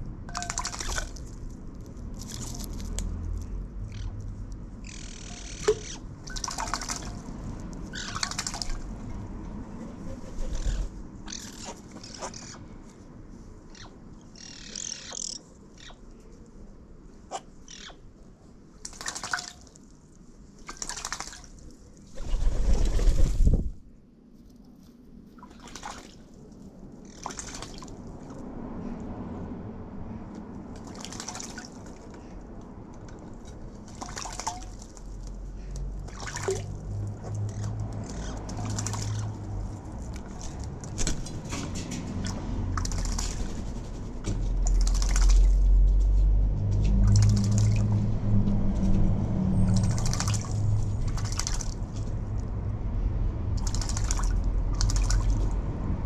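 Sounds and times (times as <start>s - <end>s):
water splashing: 5.6s - 7.3s, 25.4s - 26.3s, 27.0s - 28.3s, 30.8s - 32.2s, 33.3s - 35.4s, 36.0s - 41.2s, 44.6s - 45.6s, 46.9s - 48.1s, 49.6s - 52.2s, 53.5s - 55.6s
low rumble: 42.0s - 56.0s.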